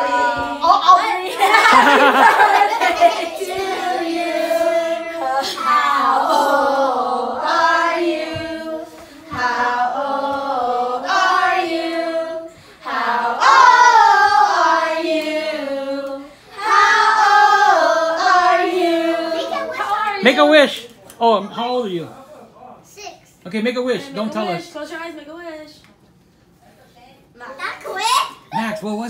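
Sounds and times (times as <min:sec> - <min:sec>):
group of voices singing together: 0:00.0 - 0:19.8.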